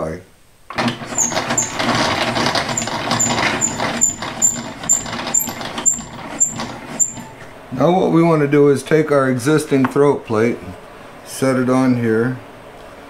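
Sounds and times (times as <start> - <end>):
saw crank gearing grinding: 0.7 - 7.5
short high squeak: 1.0 - 7.5.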